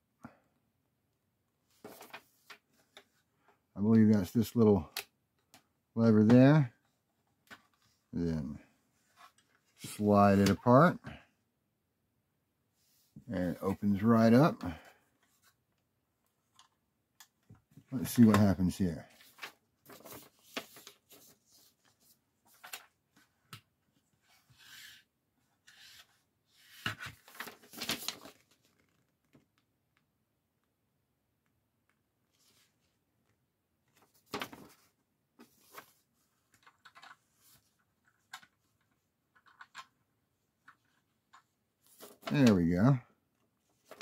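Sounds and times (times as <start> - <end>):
paper rustling: 18.0 - 23.4, 25.6 - 29.1, 33.9 - 39.9, 40.6 - 42.8, 43.7 - 44.0.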